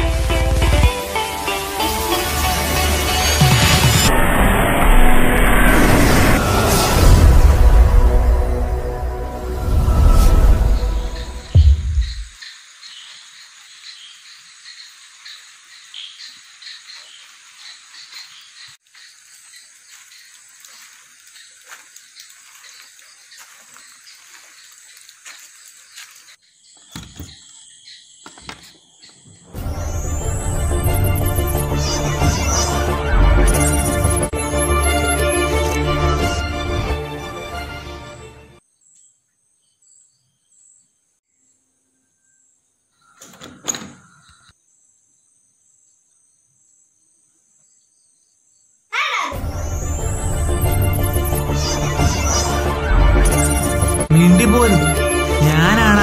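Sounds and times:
loud music: 0.0s - 4.4s, 52.6s - 56.0s
frogs and insects chorus: 11.0s - 29.5s
low thuds: 11.4s - 12.4s
door squeak: 43.2s - 44.3s.

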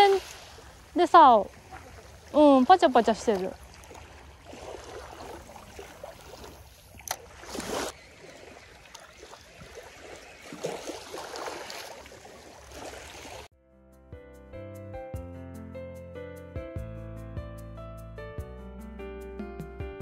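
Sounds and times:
small waves washing: 0.0s - 13.5s
gentle instrumental music: 13.5s - 20.0s.

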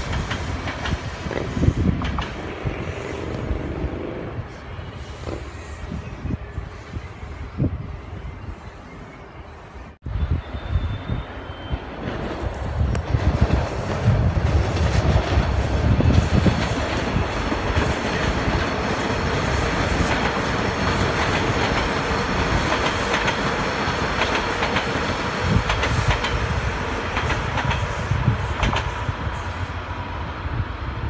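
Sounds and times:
train wheels rumbling on rails: 0.0s - 9.1s, 10.1s - 31.0s
wheels clicking over rail joints: 12.1s - 26.5s.

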